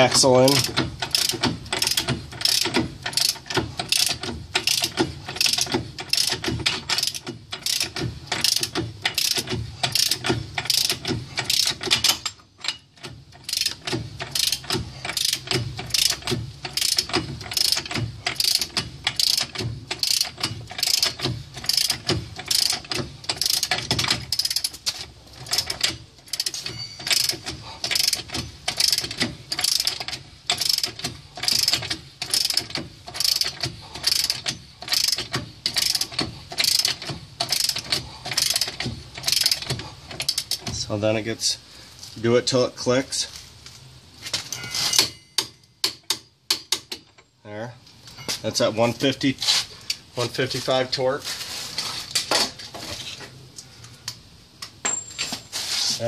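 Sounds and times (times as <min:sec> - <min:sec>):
ratchet wrench clicking: 0:00.5 - 0:40.7.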